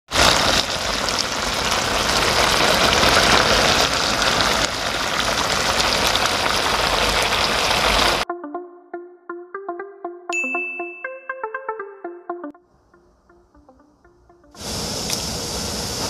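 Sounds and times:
meat sizzling in sauce: 0:00.1 - 0:08.2.

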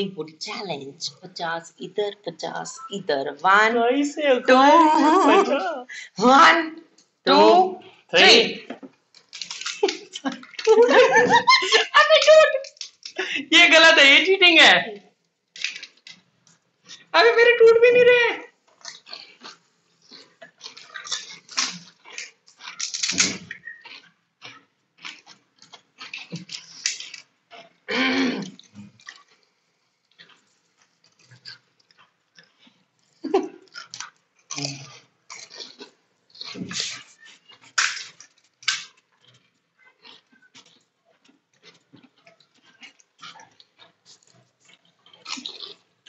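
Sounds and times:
chewing: 0:08.9 - 0:13.3, 0:15.5 - 0:17.1, 0:18.7 - 0:46.0
crunching crisp shells: 0:09.0 - 0:13.2, 0:15.5 - 0:17.1, 0:18.7 - 0:27.9, 0:28.5 - 0:46.0.

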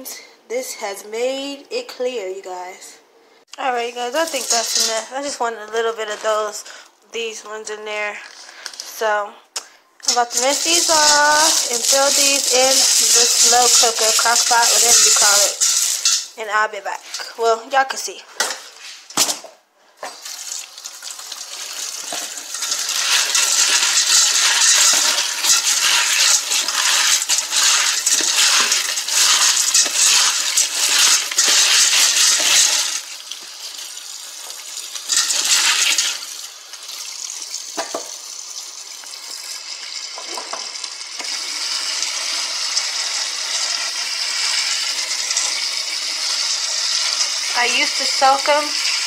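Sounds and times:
tap water running on beans: 0:03.6 - 0:05.1, 0:10.0 - 0:16.4, 0:20.0 - 0:49.0
hand stirring beans: 0:03.6 - 0:06.7, 0:10.0 - 0:17.4, 0:20.1 - 0:37.8, 0:40.2 - 0:49.0.

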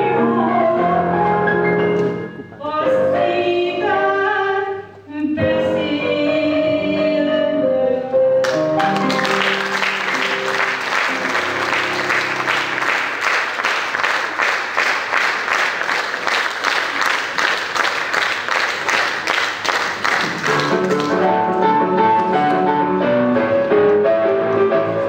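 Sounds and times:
person singing over piano: 0:00.0 - 0:12.7
audience applause: 0:08.4 - 0:21.4
rhythmic clapping in unison: 0:08.4 - 0:22.3.

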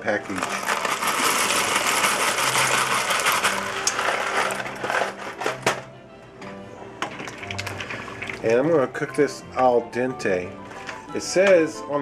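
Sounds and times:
dry pasta pouring into pot: 0:00.0 - 0:05.6.

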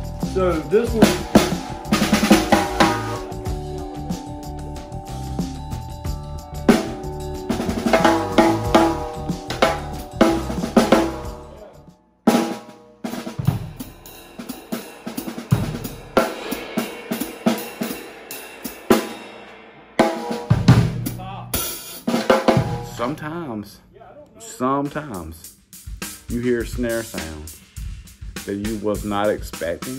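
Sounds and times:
snare drum: 0:00.0 - 0:03.6, 0:06.7 - 0:11.6, 0:12.3 - 0:19.2, 0:20.0 - 0:23.1, 0:25.8 - 0:29.9
hi-hat: 0:00.0 - 0:11.7, 0:24.9 - 0:29.9
bass drum: 0:00.0 - 0:12.5, 0:13.3 - 0:14.5, 0:15.2 - 0:16.7, 0:20.5 - 0:21.8, 0:22.4 - 0:23.2, 0:25.6 - 0:29.9
cymbals: 0:00.0 - 0:23.2, 0:24.8 - 0:29.9.

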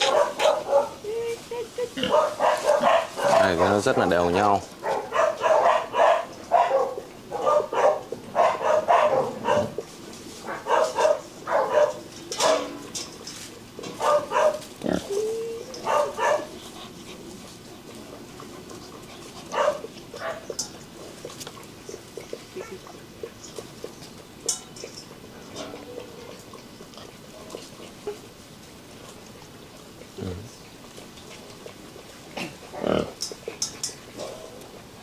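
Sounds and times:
puppies yipping and growling: 0:00.0 - 0:35.0
ticks of eating from steel bowl: 0:11.8 - 0:14.4, 0:19.4 - 0:26.7, 0:33.1 - 0:34.8.

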